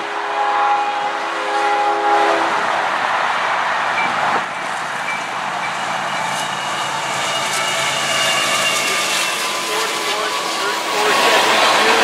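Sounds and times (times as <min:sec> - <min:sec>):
locomotive air horn: 0:00.0 - 0:02.6
approaching train rushing: 0:00.0 - 0:12.0.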